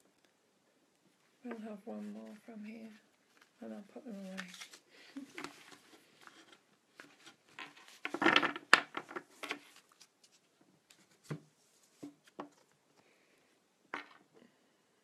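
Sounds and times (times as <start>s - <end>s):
cards rustling and scraping: 3.1s - 12.8s.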